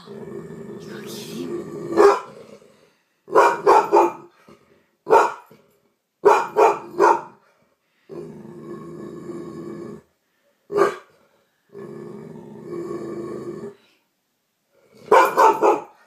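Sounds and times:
dog growling: 0.0 - 3.0, 8.0 - 10.1, 10.9 - 13.8
dog barking: 2.0 - 2.3, 3.3 - 4.3, 5.1 - 5.5, 6.2 - 7.4, 10.7 - 11.1, 15.1 - 16.0.

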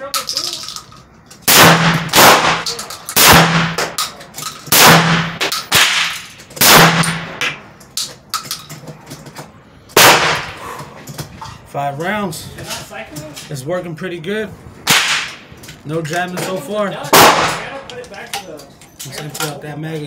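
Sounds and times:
shotgun shots: 1.5 - 4.0, 4.7 - 7.6, 10.0 - 10.6, 14.9 - 15.5, 17.1 - 17.8.

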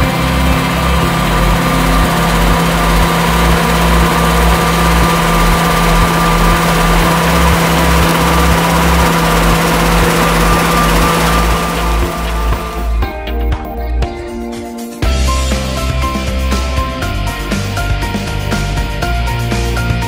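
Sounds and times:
combine harvester running: 0.0 - 13.6.

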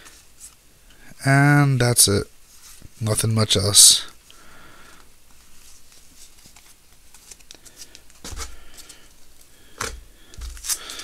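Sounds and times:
cards rustling: 4.9 - 11.0.

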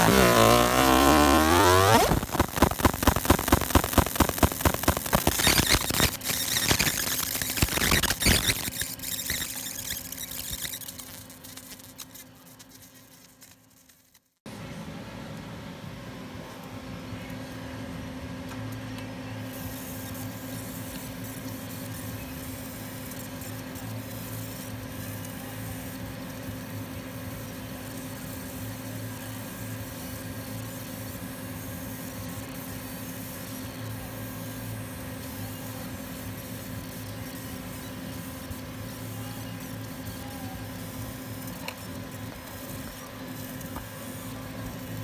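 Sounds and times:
machine humming: 0.0 - 12.0
laser hissing on metal: 0.0 - 12.1.

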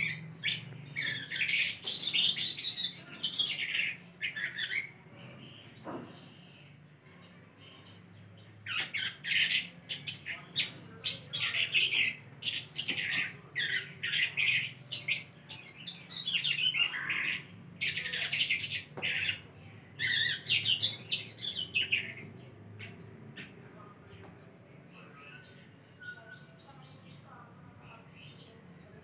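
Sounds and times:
songbird singing: 0.0 - 29.0.

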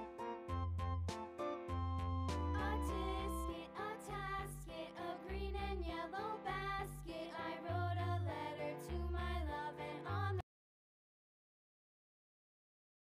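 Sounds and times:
background music with bass line: 0.0 - 3.5.

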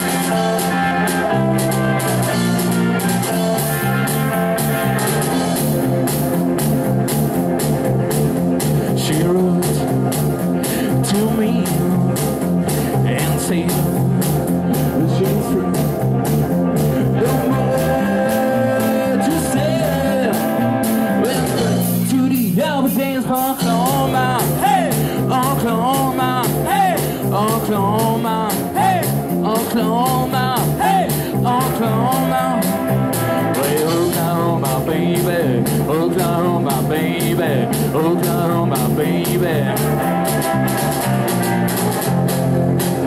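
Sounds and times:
electric guitar lead: 0.0 - 43.0
walking electric bass line: 0.0 - 43.0
quick drum beat: 23.4 - 43.0.

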